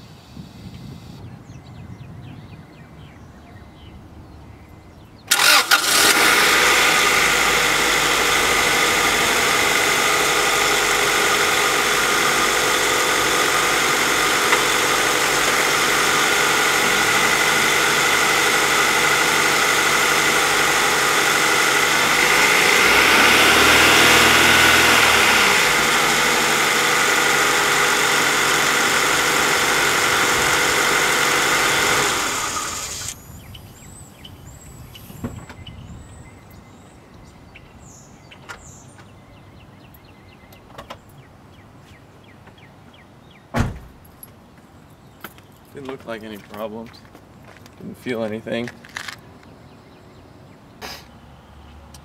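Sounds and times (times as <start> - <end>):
car engine starting and idling: 5.3 - 33.2.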